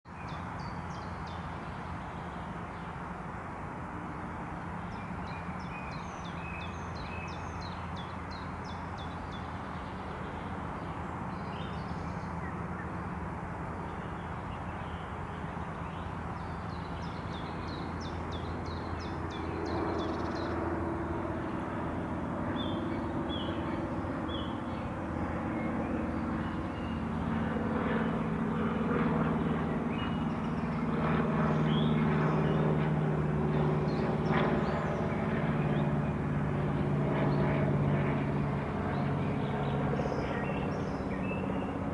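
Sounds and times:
distant traffic rumble: 0.1 - 41.9
low engine drone: 0.1 - 41.9
small birds chirping: 4.8 - 13.2, 13.8 - 20.8, 22.4 - 27.1, 29.3 - 32.8, 38.8 - 41.8.

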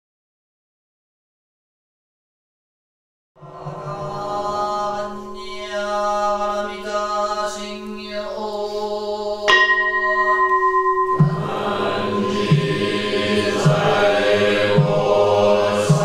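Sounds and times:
voices chanting long tones: 3.4 - 16.0
bell ringing: 9.5 - 14.2.

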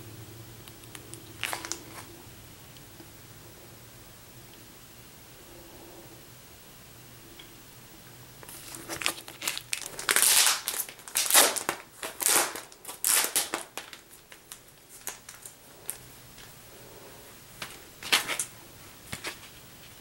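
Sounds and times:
packaging crinkling and rustling: 0.8 - 2.1, 8.4 - 16.5, 17.6 - 20.0.

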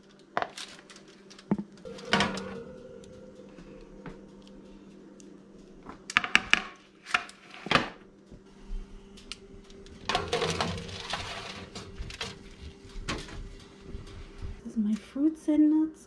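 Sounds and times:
faint hum: 0.1 - 16.0
metal baking trays clanking: 1.9 - 2.8, 10.0 - 13.8
oven rack scraping rattle: 9.8 - 14.4.

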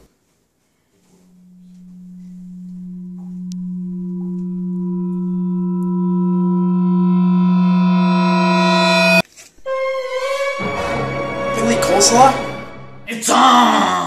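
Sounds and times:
held tone build-up effect: 1.3 - 10.4.

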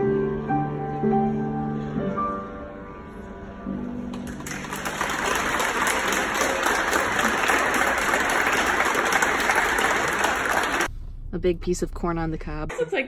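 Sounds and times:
crowd applauding: 4.1 - 10.9.

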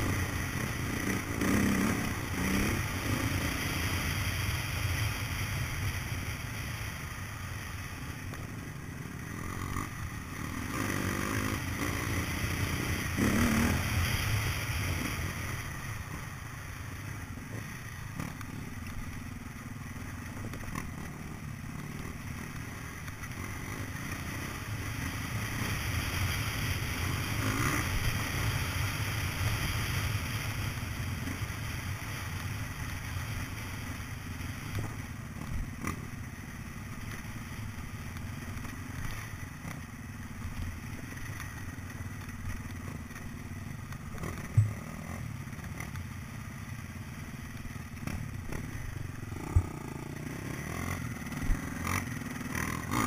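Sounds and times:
dirt bike engine revving: 0.0 - 5.0, 8.6 - 15.5, 42.8 - 53.0.

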